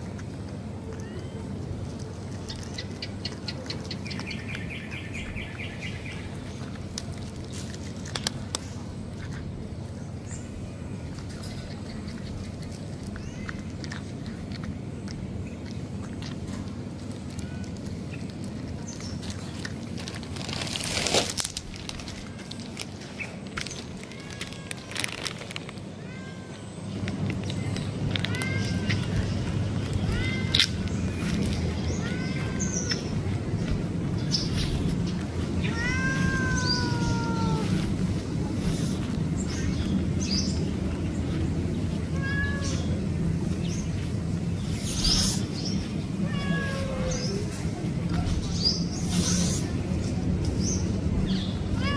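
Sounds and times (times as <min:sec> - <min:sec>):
cat crunching dry kibble: 0:00.0 - 0:48.6
low background hum: 0:00.0 - 0:51.9
cat meowing: 0:26.0 - 0:26.7, 0:28.1 - 0:33.1, 0:35.4 - 0:38.0, 0:41.9 - 0:43.0, 0:46.2 - 0:47.6.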